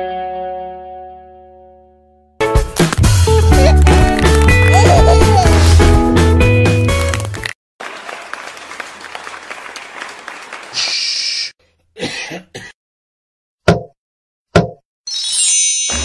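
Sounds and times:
audience applause: 3.4s - 5.8s, 6.8s - 11.1s
short sharp coughs: 12.0s - 12.8s
throat-clearing: 12.0s - 12.8s.

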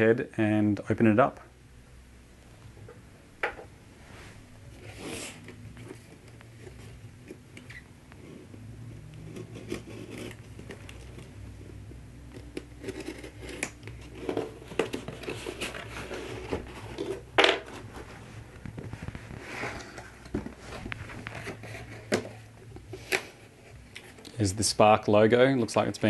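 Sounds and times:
knife scraping packing tape: 9.3s - 11.0s, 12.8s - 13.8s
cardboard box rustling and clicks: 12.4s - 17.9s.

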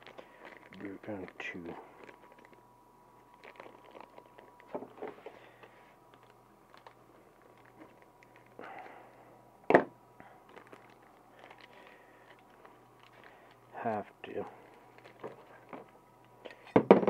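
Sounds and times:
cardboard rustling: 10.5s - 13.5s, 14.7s - 15.9s.

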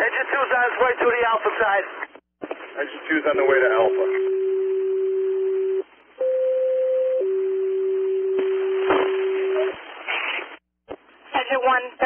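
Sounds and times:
radio alert tones: 3.7s - 6.5s.

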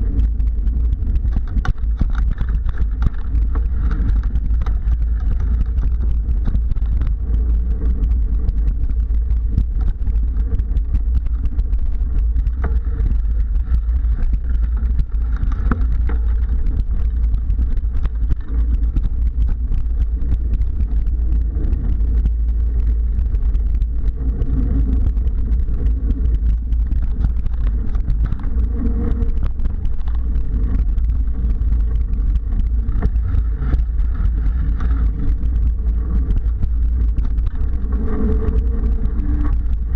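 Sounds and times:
bike knocks and rattles: 0.0s - 21.5s
wind and motion rumble: 0.0s - 39.9s.

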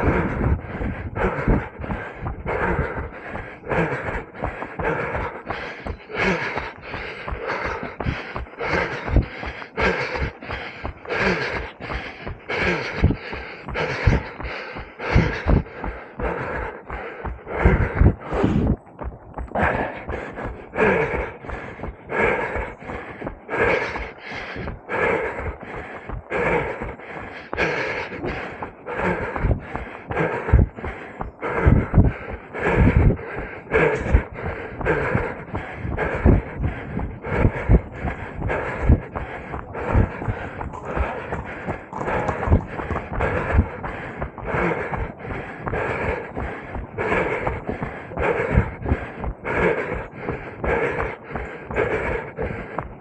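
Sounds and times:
person breathing hard: 0.0s - 53.0s.

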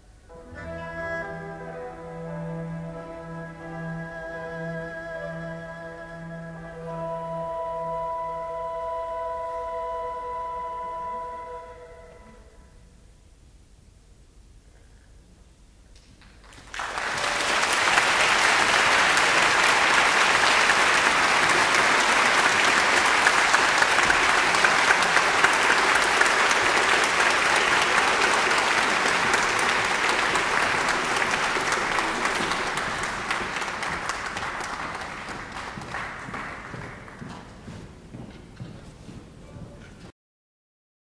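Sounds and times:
audience applause: 16.4s - 38.0s.

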